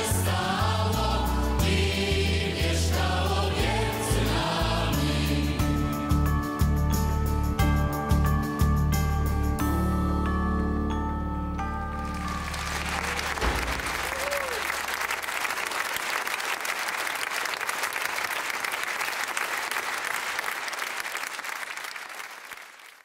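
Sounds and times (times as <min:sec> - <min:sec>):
music: 0:00.0 - 0:14.2
audience applause: 0:11.9 - 0:23.0.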